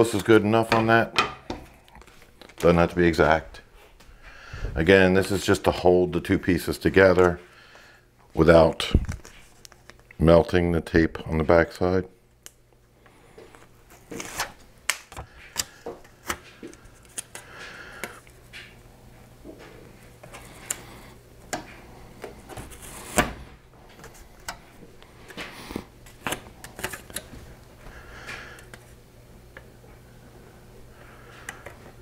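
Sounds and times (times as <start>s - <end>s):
foil tape crackling: 9.0s - 10.2s, 13.5s - 18.8s, 23.8s - 29.0s.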